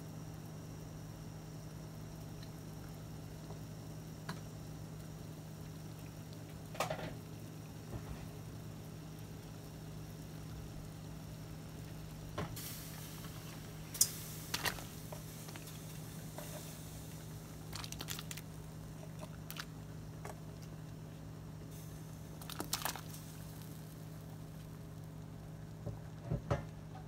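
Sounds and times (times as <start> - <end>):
steady low hum: 0.0 - 27.0
tofu splashing into boiling water: 17.6 - 19.9, 22.4 - 23.8.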